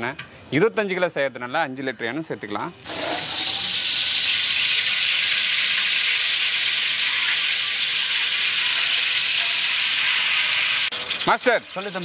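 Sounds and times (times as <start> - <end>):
oil pouring into metal pot: 2.8 - 11.3.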